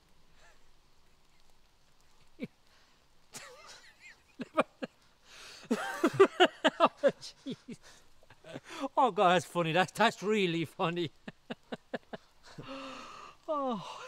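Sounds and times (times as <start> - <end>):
man laughing: 3.4 - 5.0, 5.7 - 9.2, 10.7 - 12.9, 13.5 - 14.0.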